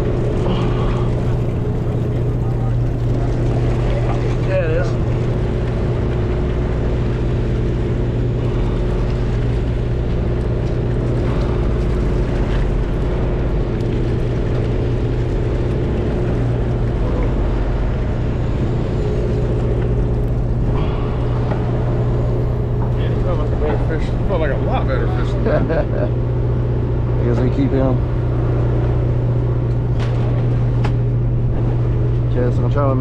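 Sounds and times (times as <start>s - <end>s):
boat engine humming: 0.0s - 33.0s.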